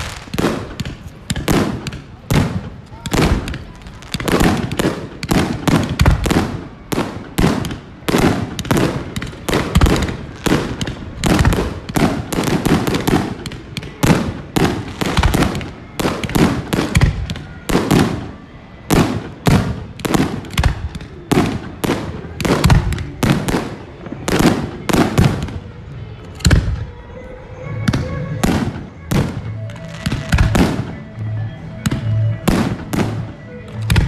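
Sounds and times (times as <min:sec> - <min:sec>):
fireworks bangs: 0:00.0 - 0:34.0.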